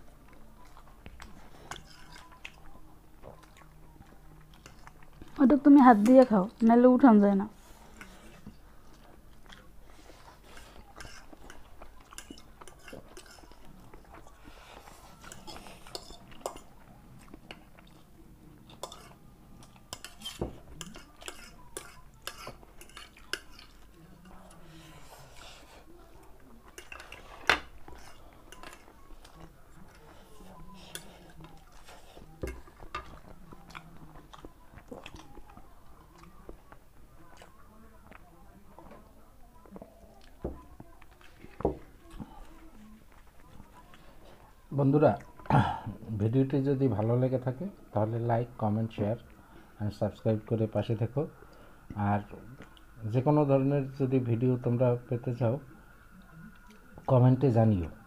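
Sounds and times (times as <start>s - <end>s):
people chewing: 0.0s - 53.0s, 55.6s - 57.2s
spoons clinking on ceramic plates: 15.2s - 16.7s, 18.7s - 23.7s, 26.8s - 28.9s.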